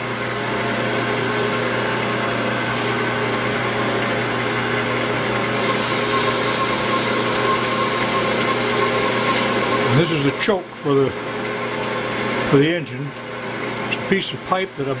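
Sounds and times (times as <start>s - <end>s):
metal lathe motor hum: 0.0s - 15.0s
high hiss of lathe cutting: 5.5s - 10.5s.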